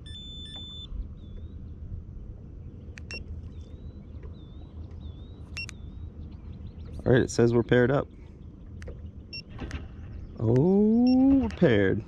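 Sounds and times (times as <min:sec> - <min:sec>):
short electronic beep: 0:00.0 - 0:00.9.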